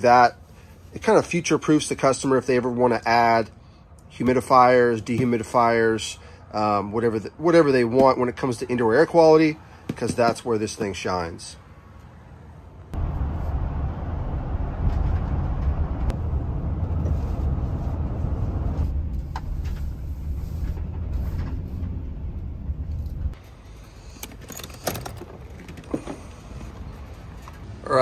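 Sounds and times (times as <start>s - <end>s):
car cabin road and engine rumble: 12.9s - 27.9s.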